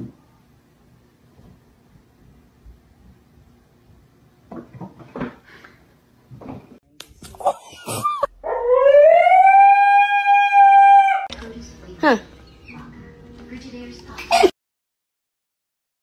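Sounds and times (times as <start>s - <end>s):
dog howling: 8.3s - 11.3s.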